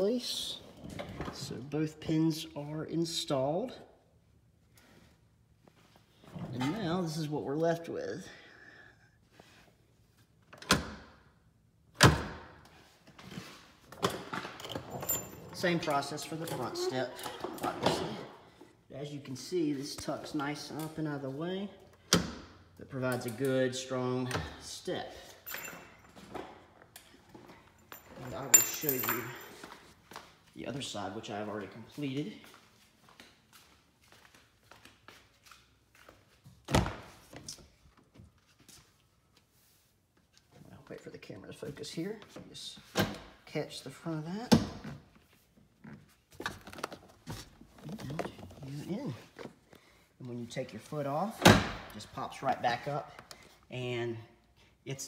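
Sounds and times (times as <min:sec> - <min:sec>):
footsteps on concrete floor: 0:31.7 - 0:36.6.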